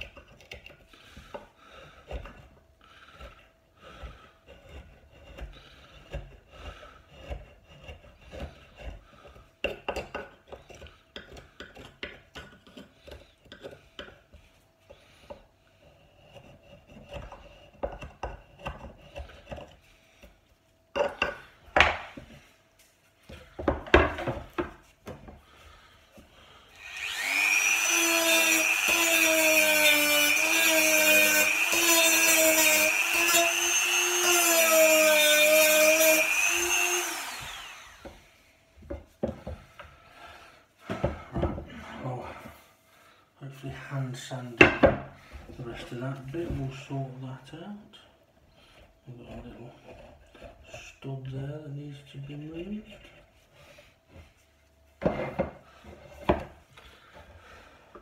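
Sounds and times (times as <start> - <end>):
tool knocking on wood: 21.0 - 22.2
high-speed power tool running: 26.7 - 38.1
scraping on wooden tabletop: 55.0 - 57.4.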